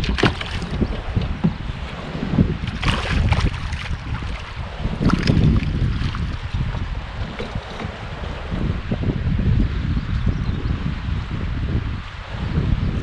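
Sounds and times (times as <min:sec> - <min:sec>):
water splashes: 0:00.0 - 0:08.8
waves lapping against kayak hull: 0:00.0 - 0:09.0
wind buffeting microphone: 0:00.0 - 0:13.0.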